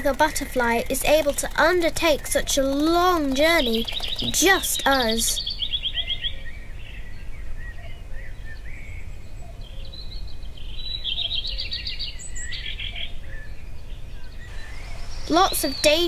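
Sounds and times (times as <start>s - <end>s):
songbirds chirping: 0.0s - 16.0s
bird trill: 0.1s - 8.7s, 14.2s - 16.0s.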